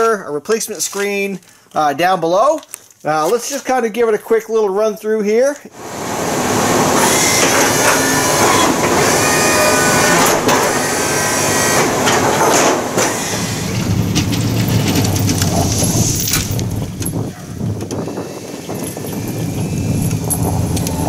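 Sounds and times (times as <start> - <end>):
electric pump motor running: 5.8 - 21.0
plow blade clunks: 6.6 - 18.0.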